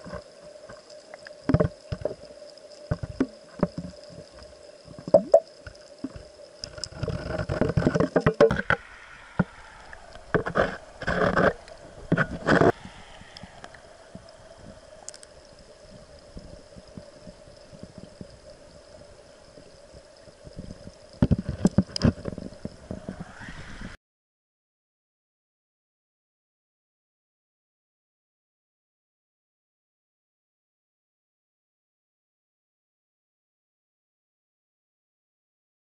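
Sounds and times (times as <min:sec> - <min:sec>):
muffled underwater stream: 0:00.0 - 0:24.0
knocks and scrapes against rocks: 0:06.7 - 0:09.5, 0:10.3 - 0:12.8.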